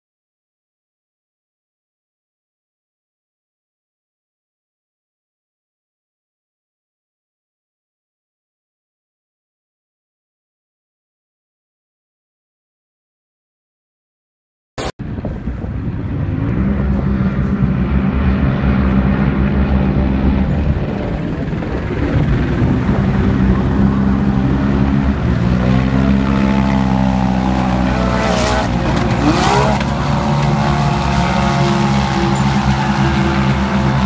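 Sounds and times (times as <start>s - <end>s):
rising whine: 14.8s - 34.0s
race truck engines running hard: 15.0s - 34.0s
loud noisy bursts: 28.7s - 34.0s.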